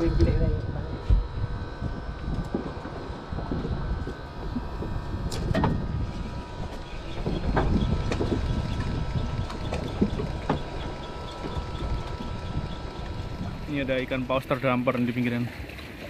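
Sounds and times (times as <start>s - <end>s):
wind buffeting microphone: 0.0s - 14.6s
low rumbling water wash: 0.0s - 16.0s
sharp knocks on boat: 4.8s - 5.8s, 7.2s - 8.9s, 9.5s - 11.6s.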